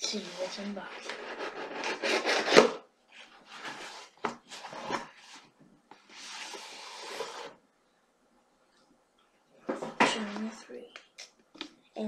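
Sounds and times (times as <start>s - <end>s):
book sliding out of box: 6.1s - 7.6s
cardboard box scraping: 6.1s - 7.6s.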